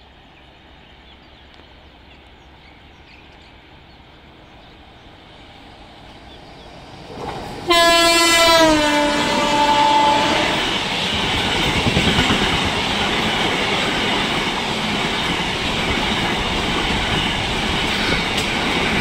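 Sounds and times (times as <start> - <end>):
locomotive horn: 7.7 - 10.8.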